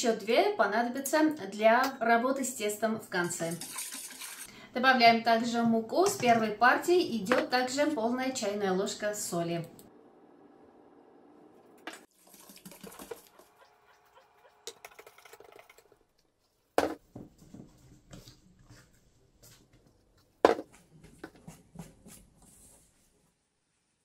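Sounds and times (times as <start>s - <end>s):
whisk scraping metal bowl: 3.5s - 4.5s.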